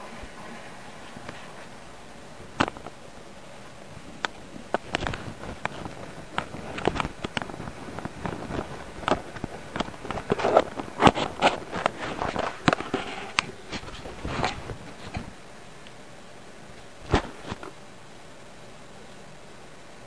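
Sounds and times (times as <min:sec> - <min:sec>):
cat claws scratching on camera: 0:04.8 - 0:15.3.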